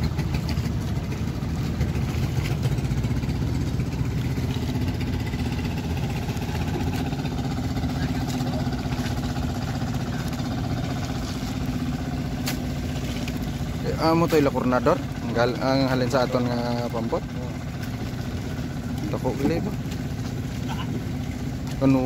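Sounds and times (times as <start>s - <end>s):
boat engine running: 0.0s - 22.0s.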